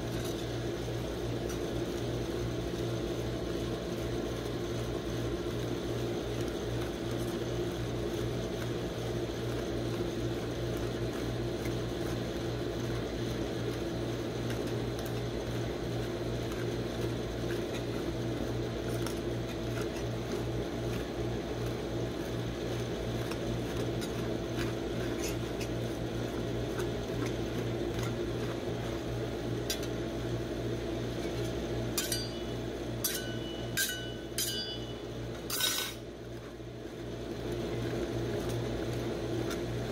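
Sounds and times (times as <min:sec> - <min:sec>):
machine humming: 0:12.2 - 0:36.0
spatulas scraping on steel plate: 0:32.0 - 0:34.9, 0:35.5 - 0:36.0
sharp metallic clinks: 0:32.0 - 0:35.8.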